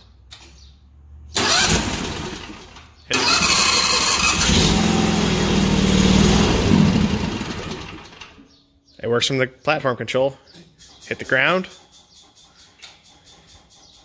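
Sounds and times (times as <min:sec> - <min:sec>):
electric starter cranking engine: 0:01.3 - 0:08.4
gas engine running: 0:01.3 - 0:08.4.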